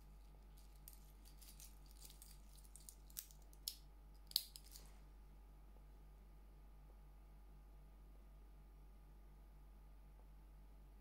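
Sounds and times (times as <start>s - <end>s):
watch bracelet clinking and clicking: 0.6s - 4.9s.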